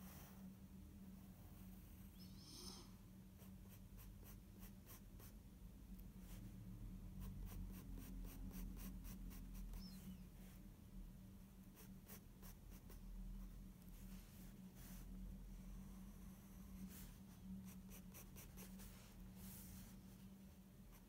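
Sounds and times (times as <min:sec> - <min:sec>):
pencil scratching on paper: 0:07.2 - 0:10.0, 0:11.7 - 0:13.0, 0:15.8 - 0:20.2.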